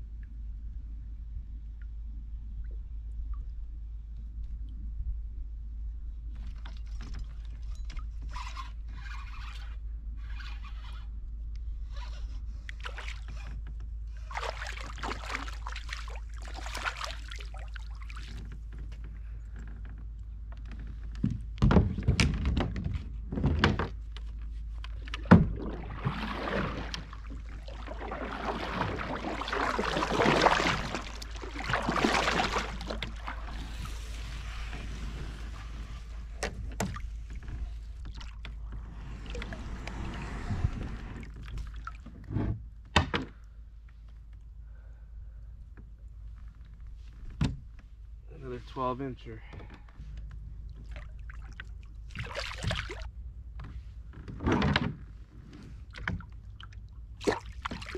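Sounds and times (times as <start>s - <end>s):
steady low rumble: 0.0s - 6.4s
paddle splashing through water: 12.7s - 13.5s, 14.1s - 18.7s, 24.5s - 42.1s, 50.7s - 53.1s, 55.5s - 57.9s.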